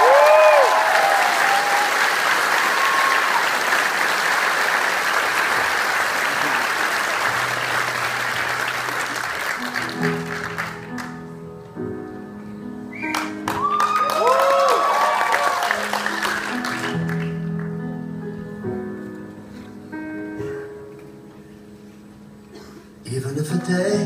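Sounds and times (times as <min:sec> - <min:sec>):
audience applauding and cheering: 0:00.0 - 0:11.4, 0:12.9 - 0:17.8
slow sustained keyboard notes: 0:06.4 - 0:13.5, 0:15.9 - 0:24.0.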